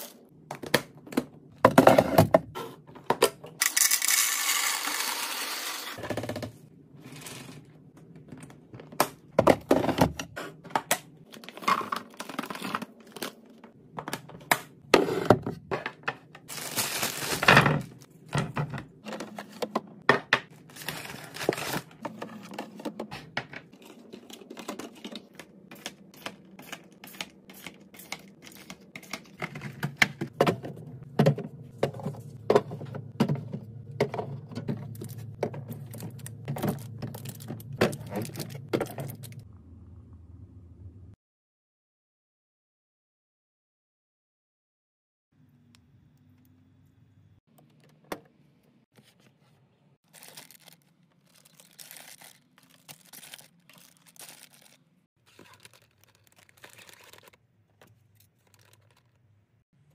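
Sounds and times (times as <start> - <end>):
plastic containers clicking and knocking: 28.2 - 39.4.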